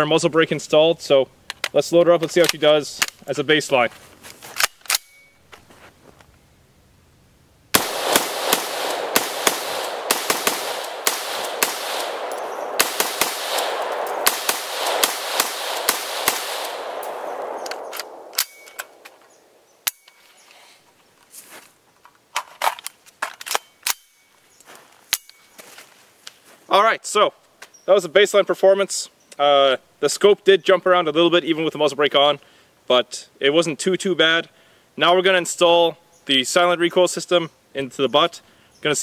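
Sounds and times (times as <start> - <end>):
metallic clicks of rifle handling: 1.5 - 3.3, 4.6 - 5.4, 17.0 - 19.2, 22.0 - 24.1
rifle gunshots with echo: 7.7 - 19.0.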